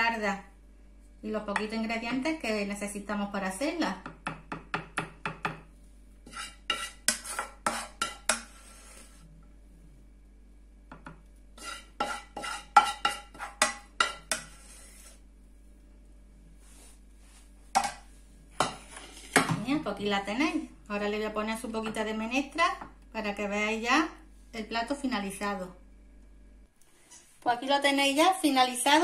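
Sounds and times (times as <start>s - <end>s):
spoon scraping frying pan: 6.2s - 9.2s, 11.6s - 15.2s, 17.8s - 19.5s.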